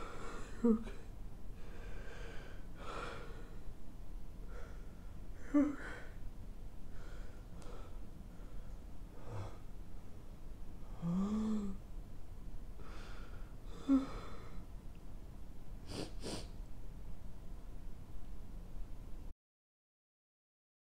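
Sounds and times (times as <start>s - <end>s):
man crying quietly: 0.0s - 1.2s, 5.4s - 6.2s.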